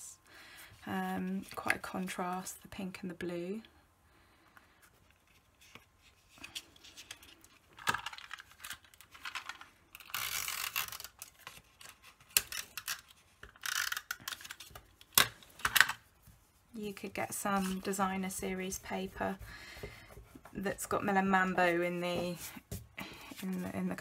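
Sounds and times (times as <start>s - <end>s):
paper scraping and rustling: 16.0s - 24.0s.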